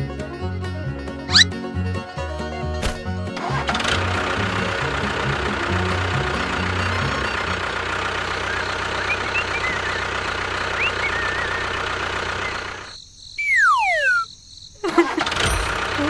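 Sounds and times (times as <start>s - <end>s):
tractor engine running: 0.0s - 14.2s, 14.8s - 16.0s
bird chirps: 8.3s - 14.4s
cartoon whistle falling in pitch: 13.4s - 14.3s.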